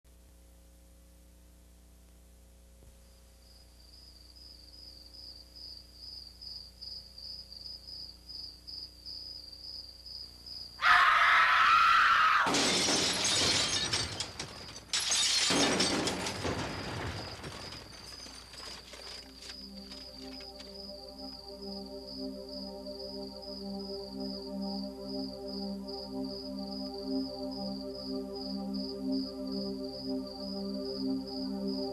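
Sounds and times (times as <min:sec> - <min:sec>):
loud shattering crash: 0:12.4 - 0:19.4.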